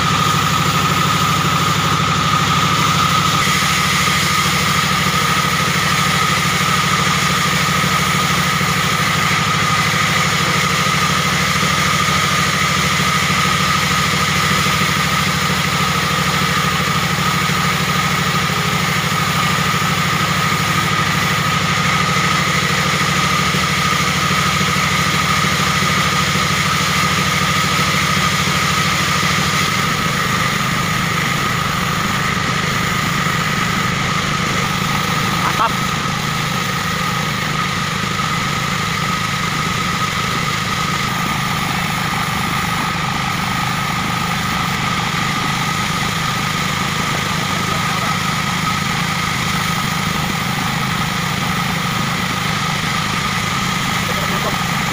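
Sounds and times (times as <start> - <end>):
diesel engine throbbing: 0.0 - 54.9.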